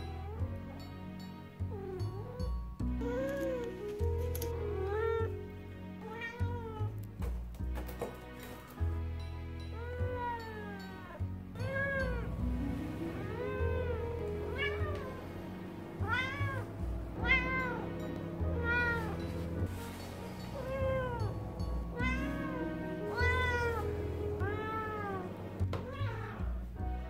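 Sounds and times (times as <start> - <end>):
background music: 0.0 - 27.0
cat meowing: 4.8 - 5.3, 6.0 - 7.0, 9.8 - 12.5, 13.1 - 19.7, 20.5 - 26.7.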